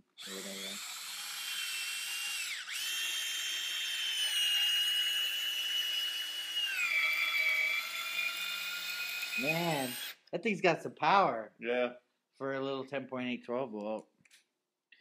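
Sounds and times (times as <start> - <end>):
cordless drill motor whine: 0.2 - 10.2.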